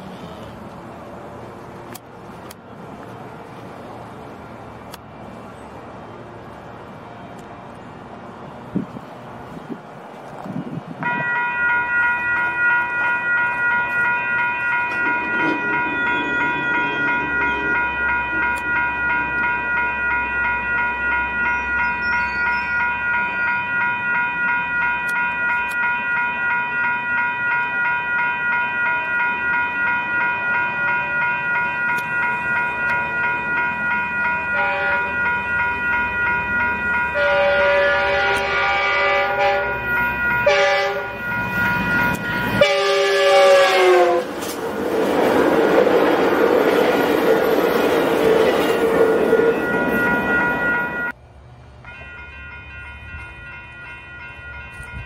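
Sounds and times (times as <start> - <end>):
railroad crossing bell ringing: 11.0 - 55.0
train horn: 34.5 - 35.2, 37.2 - 41.2, 42.6 - 44.4.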